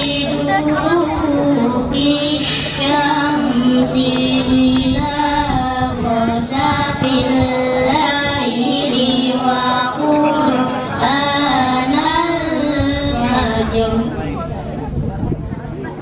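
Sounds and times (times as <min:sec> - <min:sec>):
child singing over loudspeaker: 0:00.0 - 0:14.5.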